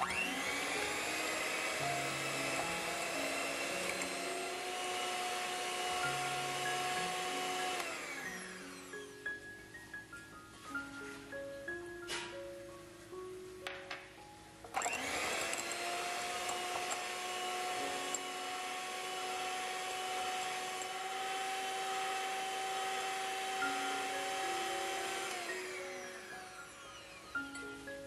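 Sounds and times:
electric hand mixer whirring: 0.0 - 9.2, 14.7 - 27.8.

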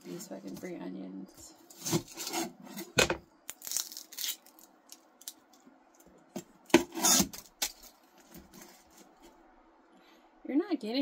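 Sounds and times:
onion skin crackling as peeled: 3.5 - 5.6.

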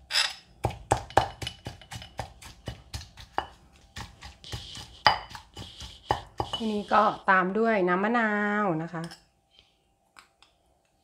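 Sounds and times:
pestle scraping: 0.0 - 7.2
stone pestle pounding in mortar: 0.6 - 6.8.

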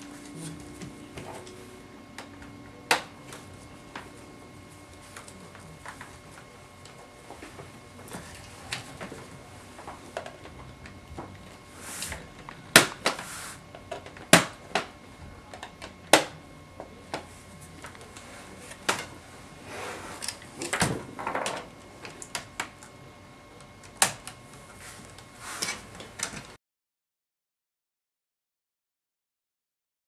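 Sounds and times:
laptop scraping on desk: 19.6 - 20.4.

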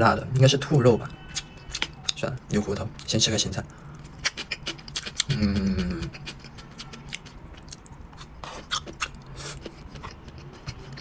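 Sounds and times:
person chewing crunchy food: 3.0 - 11.0
person humming: 5.2 - 6.4.

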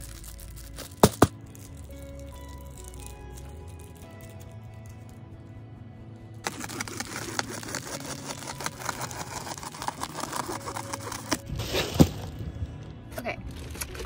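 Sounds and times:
scissors cutting crinkly insulation: 0.0 - 4.5, 6.4 - 12.4.

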